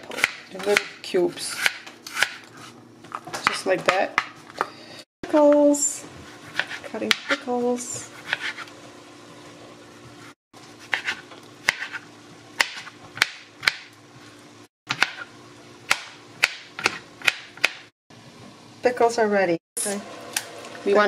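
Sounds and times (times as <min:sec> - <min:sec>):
knife chopping on plastic board: 0:00.1 - 0:02.5, 0:06.5 - 0:07.4, 0:08.2 - 0:08.6, 0:10.9 - 0:12.0, 0:12.6 - 0:13.9, 0:14.9 - 0:15.2, 0:15.9 - 0:17.9.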